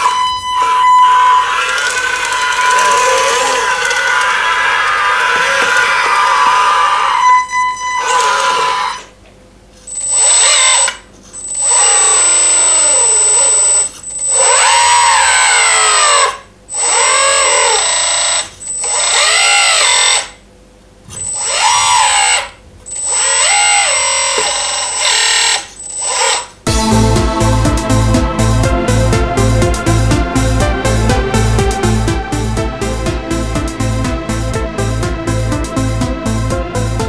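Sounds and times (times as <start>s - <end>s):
electric hydraulic pump whining: 0.0s - 9.2s, 9.8s - 20.4s, 21.1s - 37.0s.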